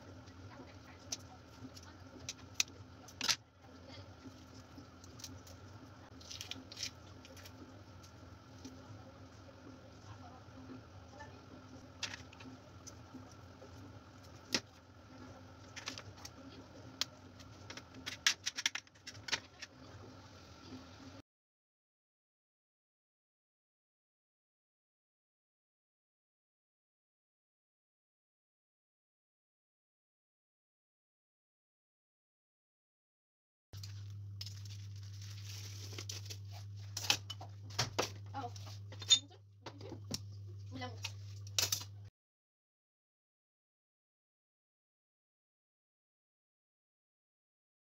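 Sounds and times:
faint steady hum: 0:00.0 - 0:21.2.

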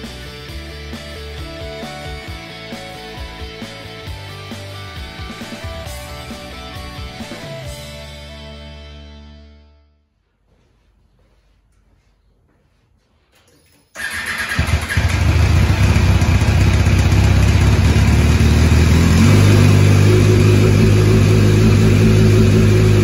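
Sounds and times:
motorcycle engine starting and idling: 0:13.6 - 0:23.0.

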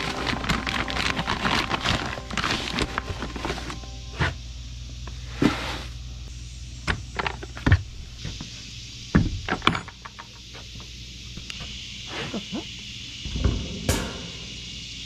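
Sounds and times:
kibble pouring: 0:00.0 - 0:03.7
low steady hum: 0:00.0 - 0:15.0.

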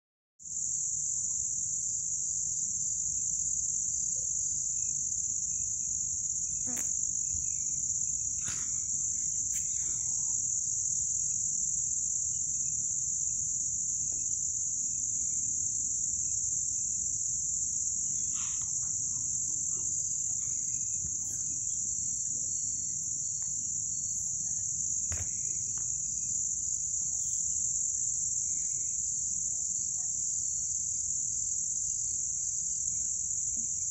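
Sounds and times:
crickets chirring: 0:00.4 - 0:33.9.

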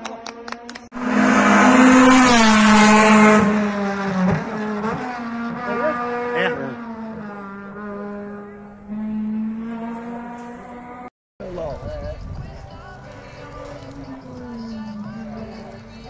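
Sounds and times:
race car engine at high revs passing: 0:00.1 - 0:11.1.

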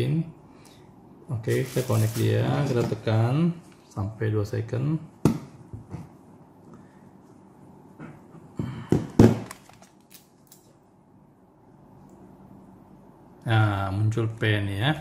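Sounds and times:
plastic device handling thunks: 0:08.9 - 0:09.8.

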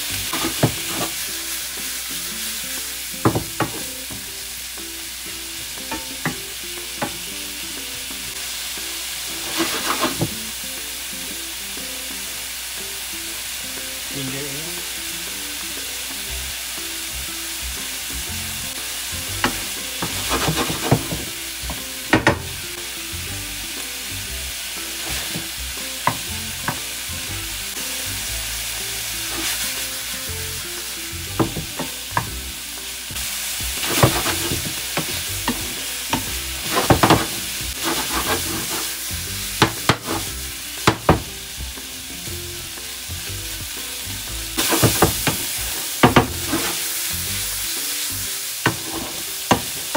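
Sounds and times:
shrimp sizzling in oil: 0:00.0 - 0:49.9
wooden spoon scraping pan: 0:00.3 - 0:01.2, 0:09.4 - 0:10.3, 0:19.4 - 0:21.3, 0:33.8 - 0:39.0, 0:39.9 - 0:40.3, 0:46.0 - 0:46.8, 0:48.7 - 0:49.6.

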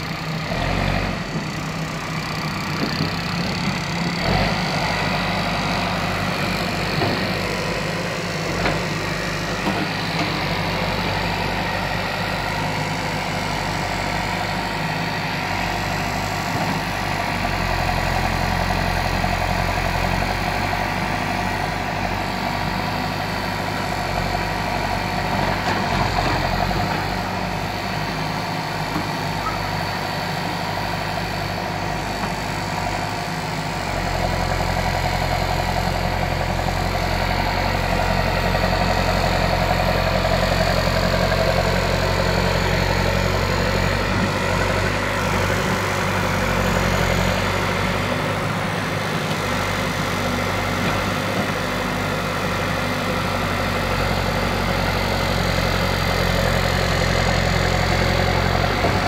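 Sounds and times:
backhoe diesel engine running: 0:00.0 - 0:59.0.

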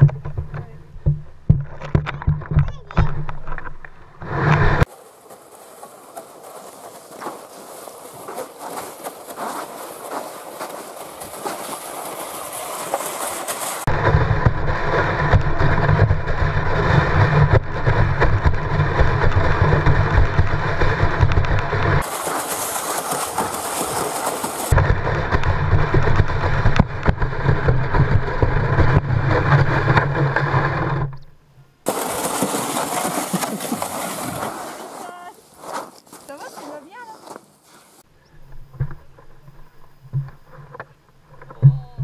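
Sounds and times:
sled scraping over snow: 0:04.2 - 0:31.0, 0:31.9 - 0:38.0.

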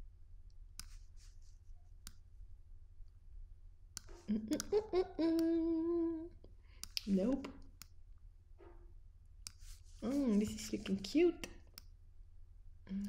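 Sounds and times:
computer mouse clicks: 0:00.8 - 0:01.1, 0:06.8 - 0:08.0, 0:09.4 - 0:09.8
woman humming: 0:04.2 - 0:06.5.

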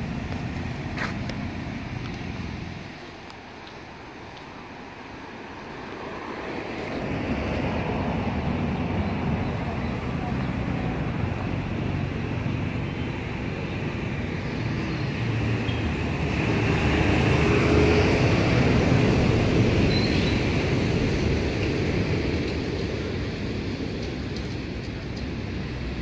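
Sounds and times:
road traffic rumbling: 0:00.0 - 0:26.0
vehicle passing close by: 0:06.1 - 0:22.1.

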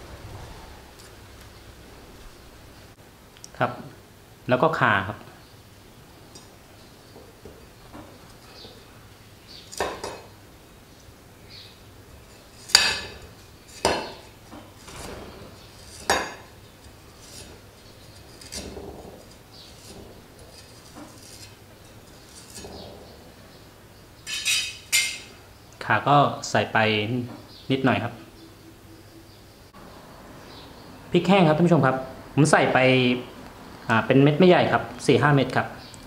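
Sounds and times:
knife cutting root: 0:15.7 - 0:21.6.

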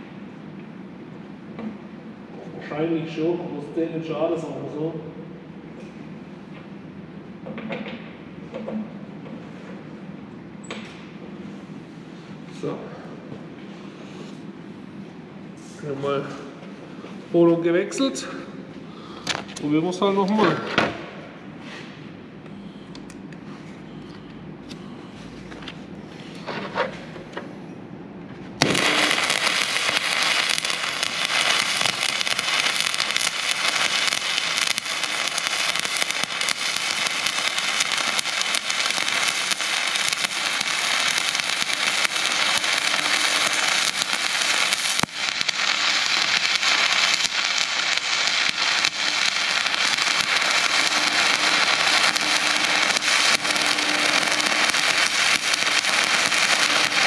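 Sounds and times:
arc welding crackling sizzle: 0:28.6 - 0:57.0.

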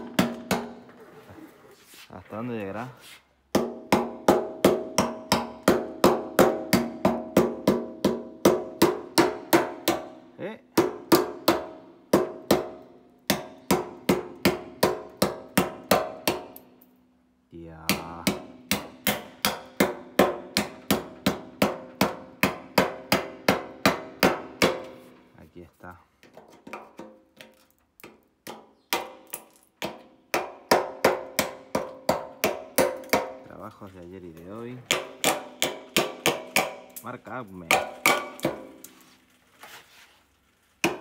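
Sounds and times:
hammer tapping on metal tank: 0:03.5 - 0:10.2, 0:10.8 - 0:16.6, 0:17.8 - 0:25.0, 0:26.2 - 0:33.5, 0:34.8 - 0:37.0, 0:37.6 - 0:38.8.

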